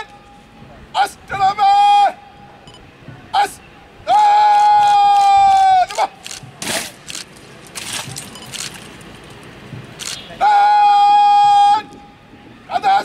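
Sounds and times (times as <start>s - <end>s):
commander shouting drawn-out command: 0.9s - 2.3s, 3.3s - 6.2s, 10.4s - 12.0s, 12.7s - 13.0s.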